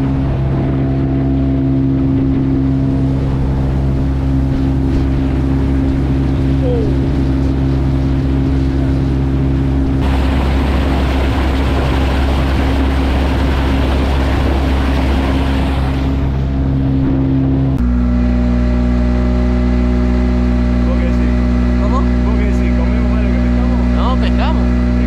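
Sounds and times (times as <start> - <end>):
wind and water rushing: 0.0 - 17.8
motorboat engine running: 0.0 - 25.0.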